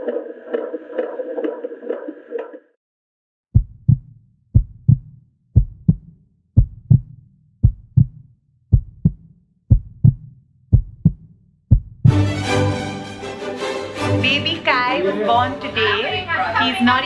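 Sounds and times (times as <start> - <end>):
heartbeat double thump: 3.5 - 12.2.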